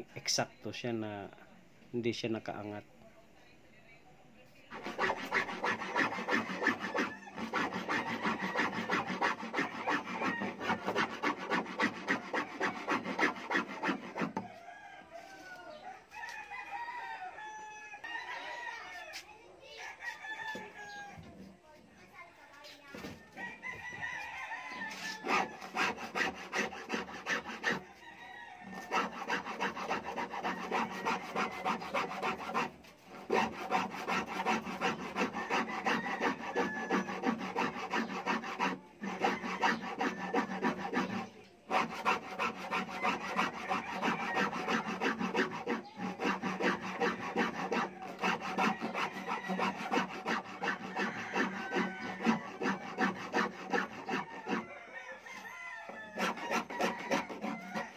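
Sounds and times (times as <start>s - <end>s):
file rasping wood: 4.7s - 14.4s, 24.7s - 27.8s, 28.6s - 54.8s, 55.9s - 57.9s.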